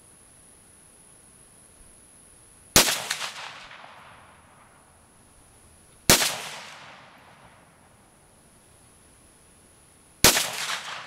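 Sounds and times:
rifle shots with echo: 2.8 - 4.7, 6.1 - 7.7, 10.2 - 11.0.

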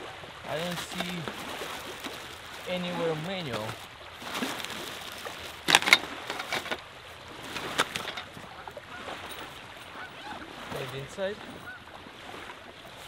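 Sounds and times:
nylon bag rustling: 0.5 - 11.6
plastic packaging crinkling: 0.7 - 6.8.

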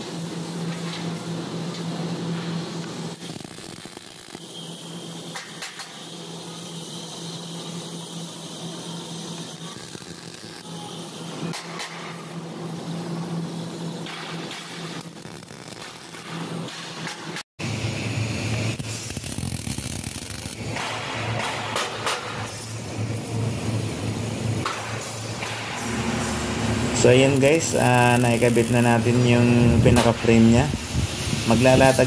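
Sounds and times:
welding arc crackling hiss: 0.0 - 32.0
steady low hum: 20.3 - 32.0.

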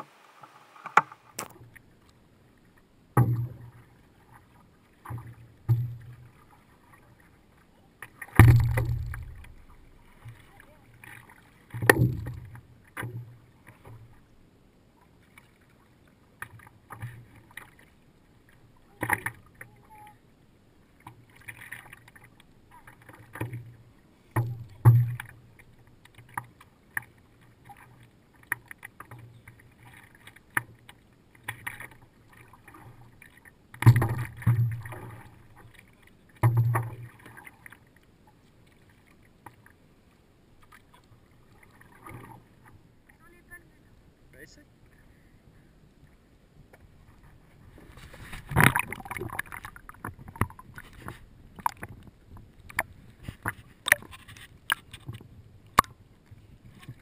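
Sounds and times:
paddle strokes splashing: 0.0 - 14.3, 15.0 - 20.0, 20.8 - 43.8, 46.7 - 57.0
water lapping against board: 3.1 - 14.3, 20.9 - 43.7, 46.7 - 57.0.

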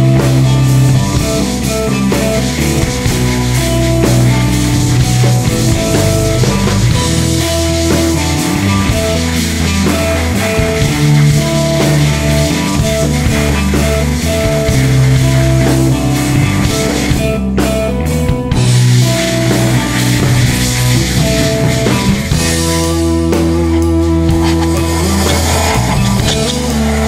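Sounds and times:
rock music: 0.0 - 27.0.

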